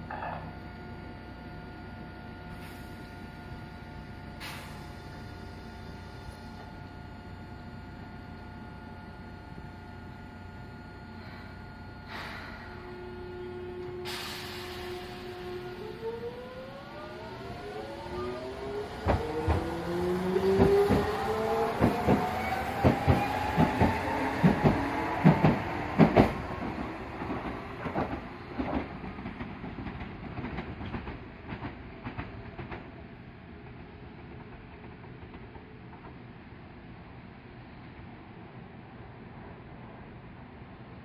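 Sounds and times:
tram traction motors whining: 0:05.2 - 0:28.2.

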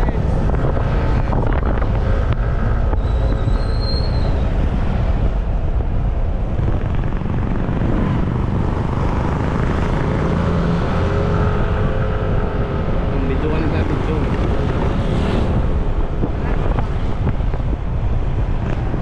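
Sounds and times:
wind rush over microphone: 0:00.0 - 0:19.0
high whistle: 0:03.0 - 0:04.4.

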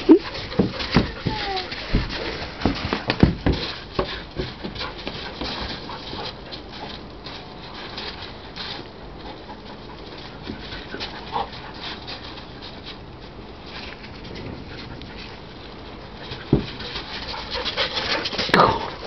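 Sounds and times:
puppy whining: 0:00.0 - 0:02.3
paws crunching on gravel: 0:00.0 - 0:19.0.

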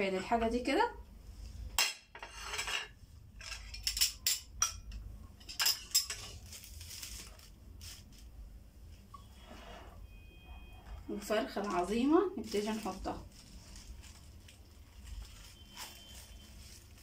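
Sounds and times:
dishes and spoons clattering: 0:01.8 - 0:06.5.

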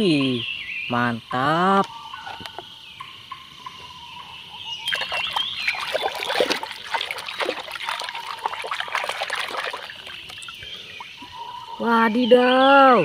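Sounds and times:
hand splashing in water: 0:04.9 - 0:10.6.

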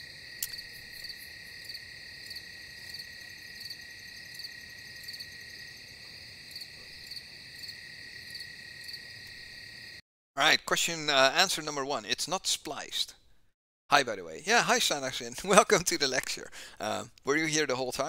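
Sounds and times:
crickets chirping: 0:00.0 - 0:10.0.

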